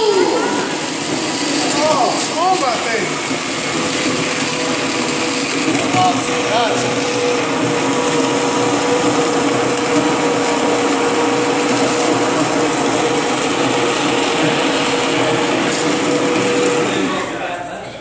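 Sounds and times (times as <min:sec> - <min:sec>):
immersion blender running: 0:00.0 - 0:17.5.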